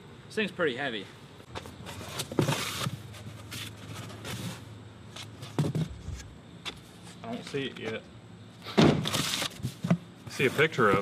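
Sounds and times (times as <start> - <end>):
cardboard rustling and scraping: 1.6 - 7.2, 8.9 - 11.0
knocks and thump: 5.5 - 6.2, 8.8 - 10.0.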